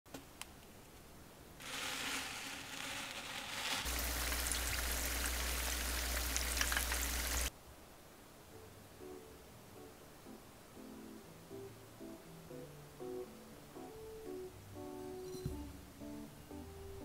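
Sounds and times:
food deep-frying in hot oil: 1.6 - 7.5.

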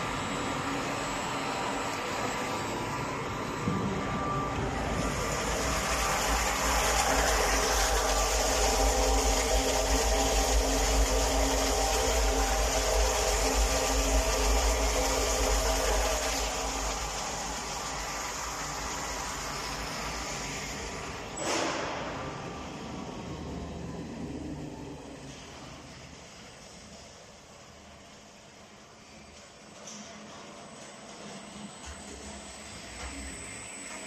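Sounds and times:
mixer running: 0.0 - 29.1
water pouring into metal tank: 5.0 - 20.3.

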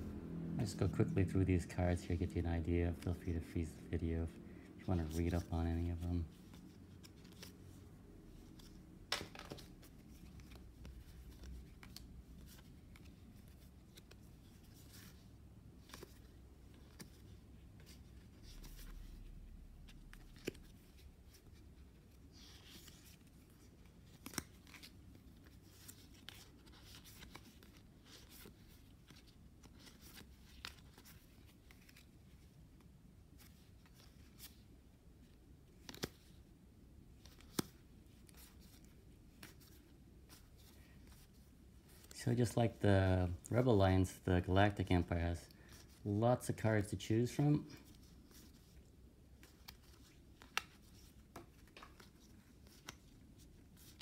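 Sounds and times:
cards clicking and sliding: 6.4 - 7.6, 8.4 - 15.2, 15.8 - 19.2, 19.9 - 32.4, 35.7 - 36.4, 37.2 - 42.6, 47.8 - 54.0.

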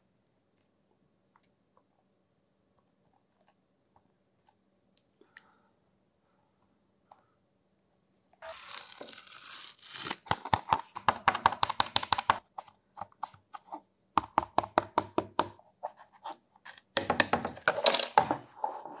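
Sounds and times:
plastic tray clicks and knocks: 17.0 - 18.3.

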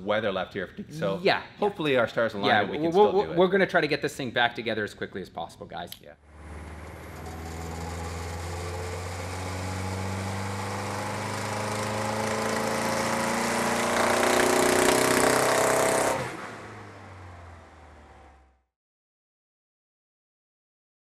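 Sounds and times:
turbocharged engine revving on dyno: 6.2 - 18.4.

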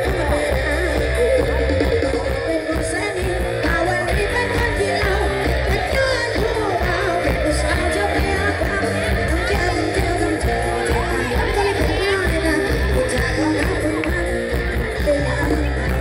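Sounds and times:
heavy bass: 0.0 - 16.0
music with singer over loudspeakers: 0.0 - 16.0.

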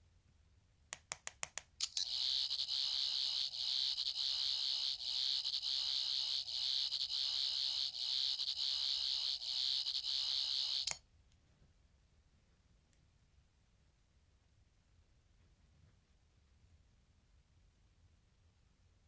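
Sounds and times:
high electronic whirr: 1.8 - 11.0.

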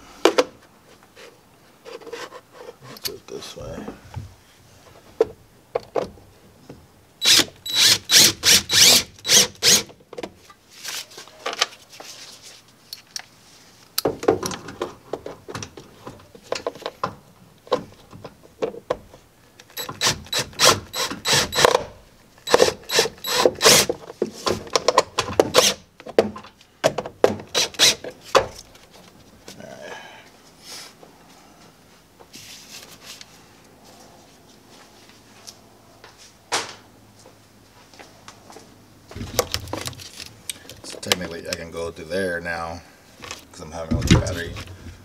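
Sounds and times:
drill driving screws into sheet metal: 7.2 - 9.9, 19.8 - 21.9, 22.5 - 23.9, 27.5 - 28.0.

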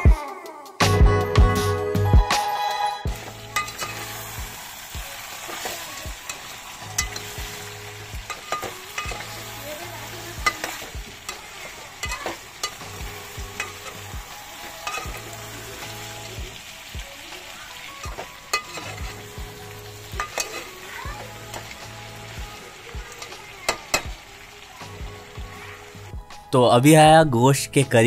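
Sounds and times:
background music: 0.0 - 28.0
curry sizzling in a pot: 3.1 - 26.5
metal spatula scraping a pot: 3.2 - 4.4, 5.3 - 14.1, 14.7 - 15.6, 18.0 - 19.4, 20.0 - 21.8.

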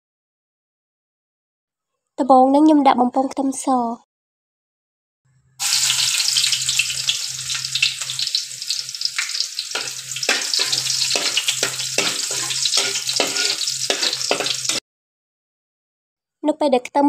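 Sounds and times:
garlic sizzling in hot oil: 5.6 - 14.8
spatula scraping a wok: 5.6 - 14.8.

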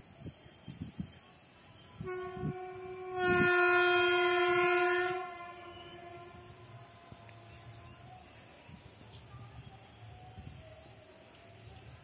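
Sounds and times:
locomotive horn blast: 2.0 - 8.2.

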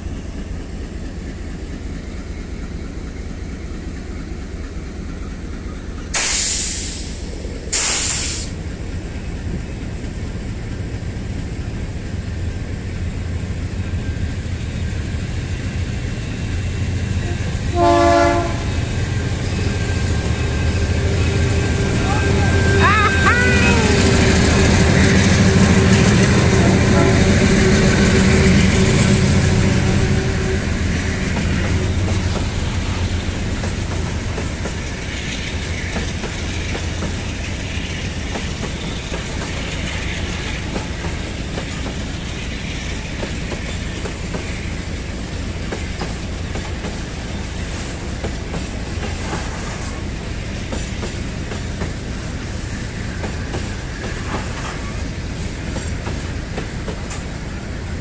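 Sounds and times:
train wheels clattering over rails: 0.0 - 22.7, 23.7 - 58.0
diesel locomotive engine: 0.0 - 58.0.

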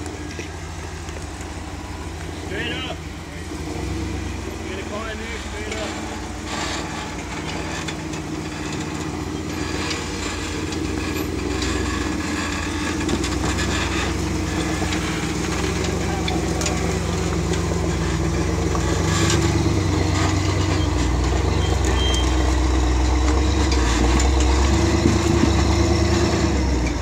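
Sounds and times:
buggy engine running under load: 0.0 - 27.0.

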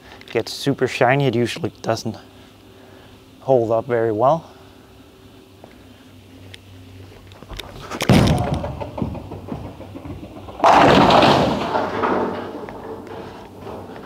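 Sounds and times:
bowling ball thud and rolling: 7.7 - 14.0
bowling pins crashing: 7.8 - 14.0.

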